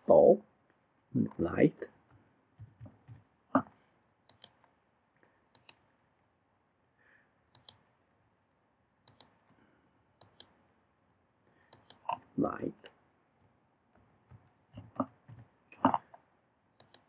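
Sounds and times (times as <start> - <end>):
computer mouse clicking: 4.3 - 4.7, 5.5 - 5.9, 7.5 - 7.8, 9.0 - 9.4, 10.2 - 10.6, 11.7 - 12.1, 16.8 - 17.0.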